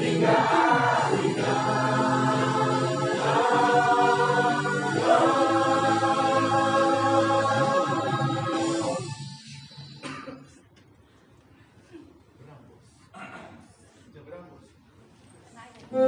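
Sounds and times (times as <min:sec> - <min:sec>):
choir singing held chords: 0:00.0 - 0:10.0.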